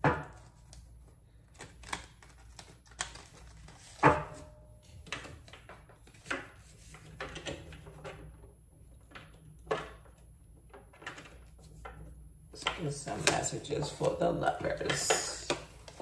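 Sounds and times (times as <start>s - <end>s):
cards being shuffled: 0.3s - 4.0s.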